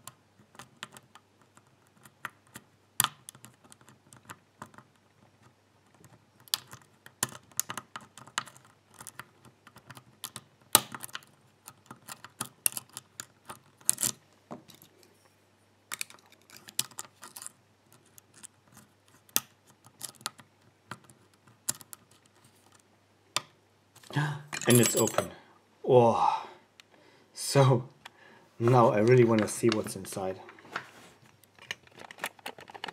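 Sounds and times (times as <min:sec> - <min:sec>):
lock pick clicking and scraping: 0:05.9 - 0:14.9, 0:15.9 - 0:22.8.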